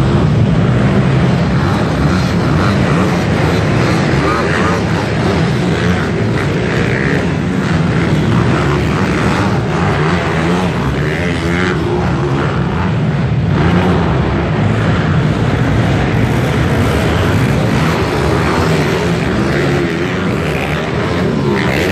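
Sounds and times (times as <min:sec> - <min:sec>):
pit bike engines revving: 0:00.0 - 0:21.9.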